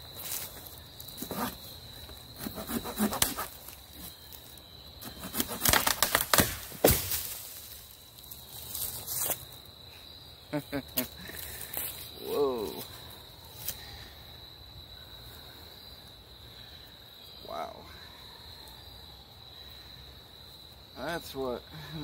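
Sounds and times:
pruning saw rasping through branch: 2.4 - 3.6, 5.0 - 6.0
branch cracking: 5.3 - 9.4
branch crashing through leaves: 5.6 - 8.0.

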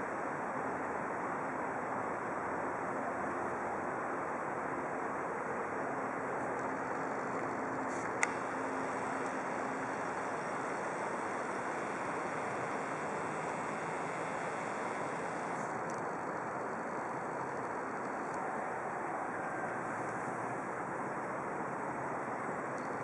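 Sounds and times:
outdoor background rush: 0.0 - 23.0
sharp click: 8.0 - 8.4.

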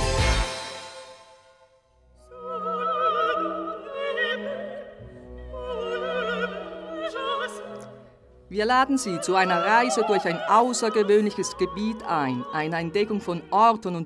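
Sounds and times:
orchestral accompaniment: 0.0 - 1.5
theme music: 0.0 - 4.4
operatic voice singing: 2.3 - 14.0.

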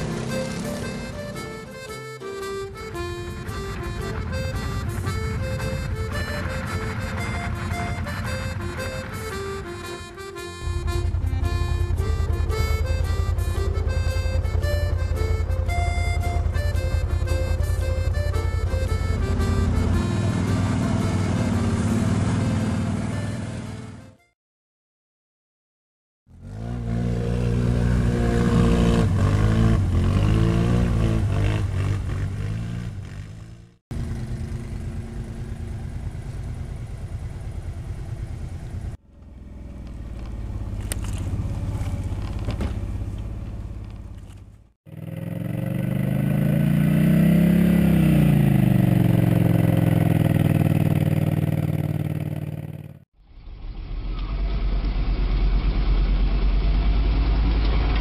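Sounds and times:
atv engine revving: 0.0 - 24.2, 26.3 - 53.0.

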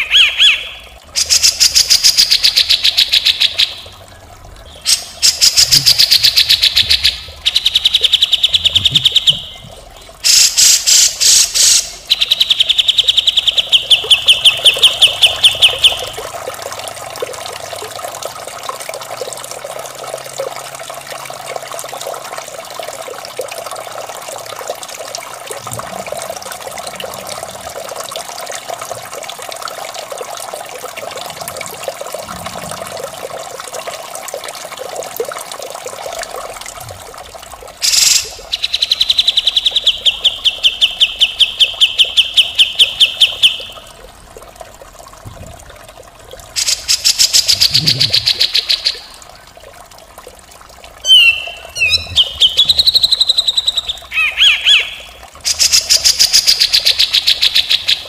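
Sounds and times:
trickle of running water: 0.0 - 58.0
bird singing harsh trills: 51.1 - 55.1.

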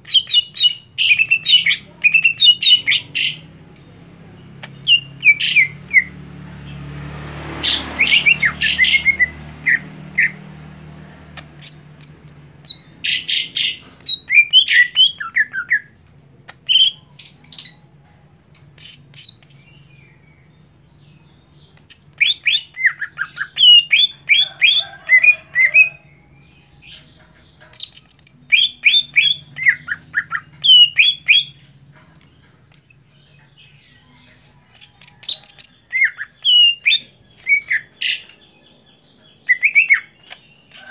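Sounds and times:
bird singing chirps and whistles: 0.0 - 3.4, 11.6 - 15.9, 21.6 - 24.8, 27.8 - 31.6, 32.7 - 33.1, 34.8 - 38.3, 39.4 - 40.9.

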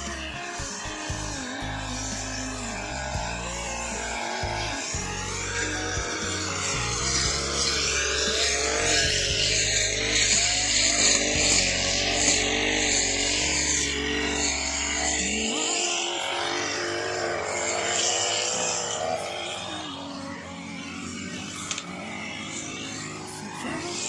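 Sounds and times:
brush cutter engines: 0.0 - 24.0.

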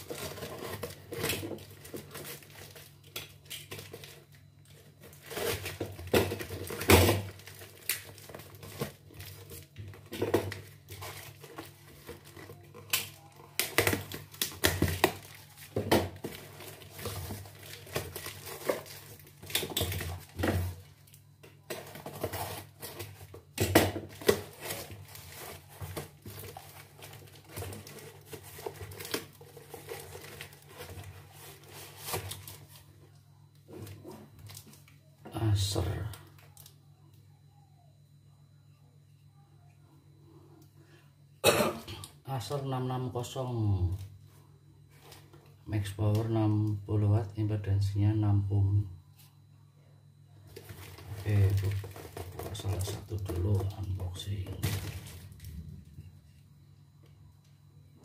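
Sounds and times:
cardboard and wrapping rustling: 0.0 - 36.7, 50.4 - 56.6
low steady hum: 0.0 - 58.0.

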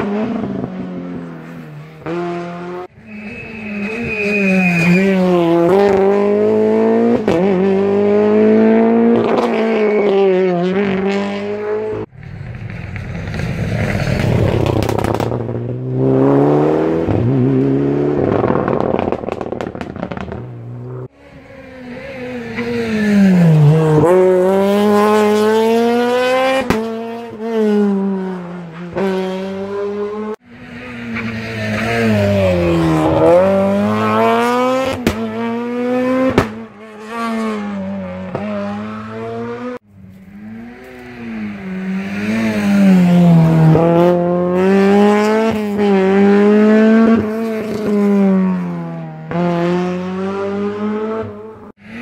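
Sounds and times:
rally car engines revving: 0.0 - 52.0
exhaust pops: 12.2 - 15.7, 18.2 - 20.5.

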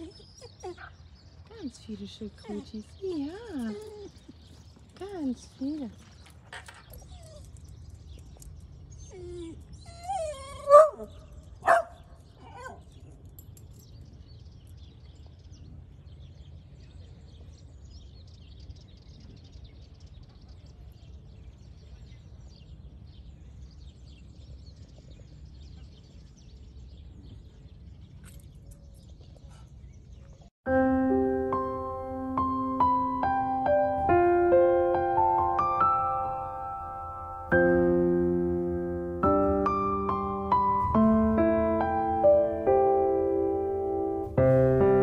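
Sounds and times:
dog barking and yelping: 9.4 - 12.8.

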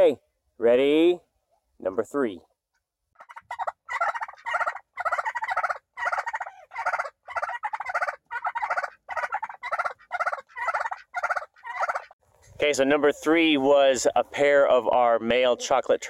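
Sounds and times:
turkeys gobbling: 3.1 - 12.2.

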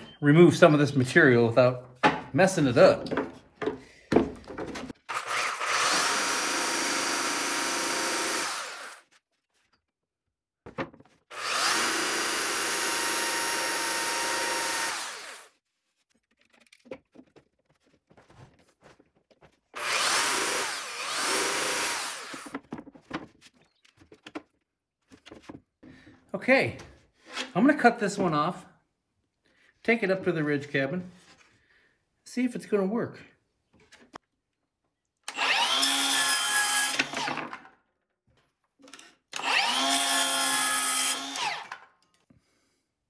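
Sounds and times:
belt sander grinding wood: 5.1 - 9.1, 11.3 - 15.5, 19.8 - 22.6, 39.4 - 41.8.

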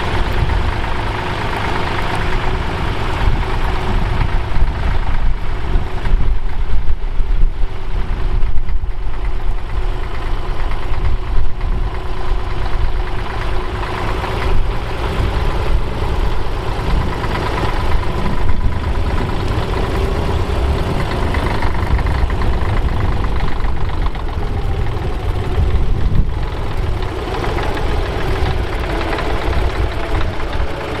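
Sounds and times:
tractor diesel engine running: 0.0 - 31.0.

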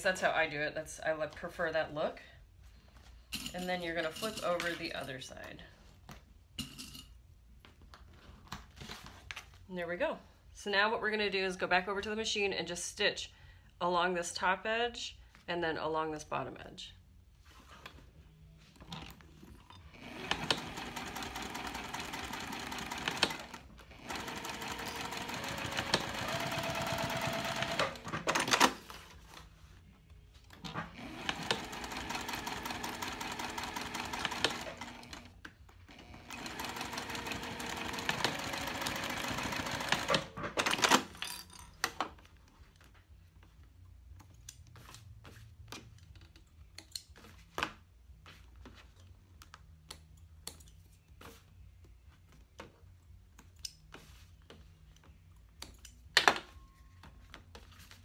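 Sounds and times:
sewing machine stitching: 20.0 - 28.8, 30.7 - 35.3, 35.9 - 41.1.

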